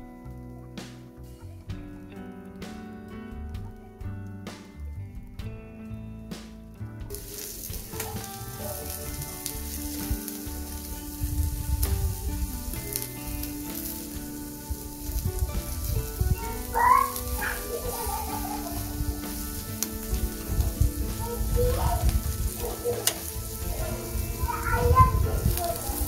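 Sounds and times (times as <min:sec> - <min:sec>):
kebab skewers sizzling on grill: 0:07.1 - 0:26.0.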